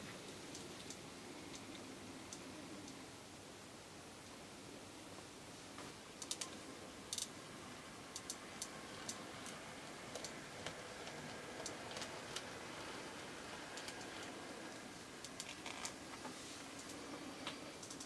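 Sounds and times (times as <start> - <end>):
faint model train motor hum: 7.1 - 18.0
wheels clicking over rail joints: 8.1 - 18.0.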